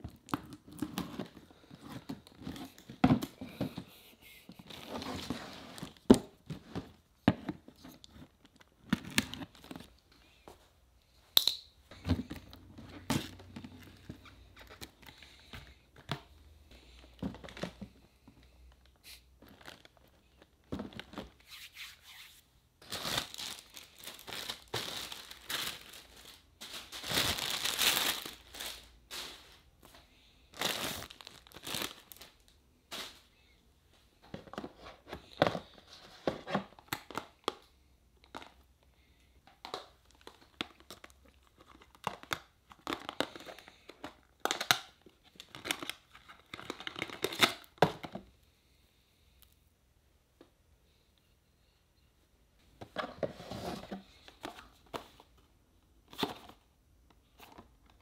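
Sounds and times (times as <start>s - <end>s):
plastic packaging rustling: 18.7s - 29.7s, 30.5s - 33.3s.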